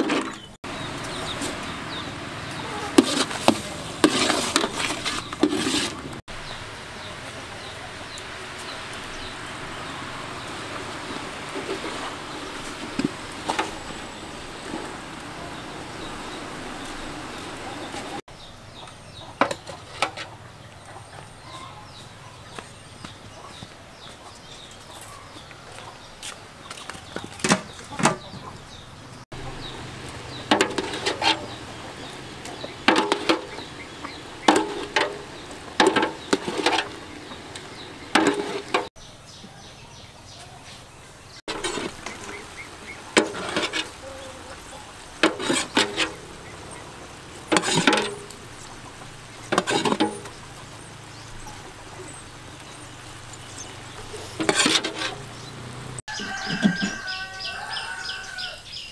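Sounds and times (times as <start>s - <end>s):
metal lid and ladle clinking pot: 32.8s - 33.7s, 34.5s - 37.0s, 38.2s - 38.9s, 47.5s - 48.4s, 49.5s - 50.3s, 54.3s - 55.2s.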